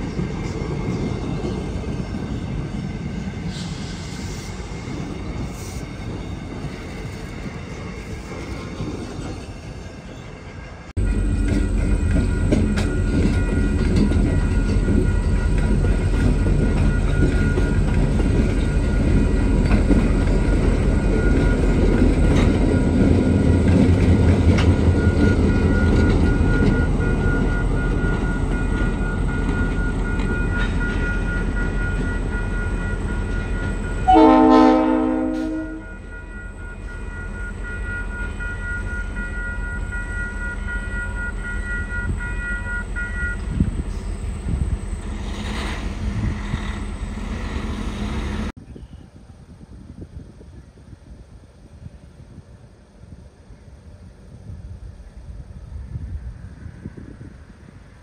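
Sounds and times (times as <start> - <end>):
electric train passing: 0.0 - 48.6, 49.2 - 58.0
diesel locomotives rumbling: 0.0 - 58.0
locomotive horn blast: 34.0 - 36.0.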